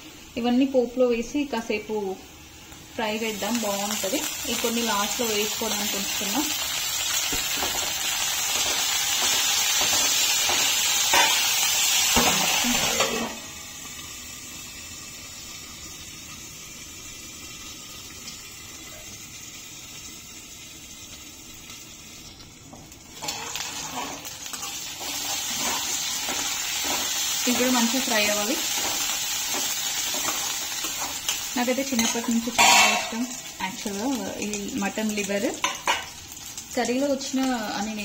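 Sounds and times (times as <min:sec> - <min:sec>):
oil sizzling in a pan: 0:00.0 - 0:38.0
spoon scraping pan: 0:23.2 - 0:28.0, 0:28.6 - 0:33.3.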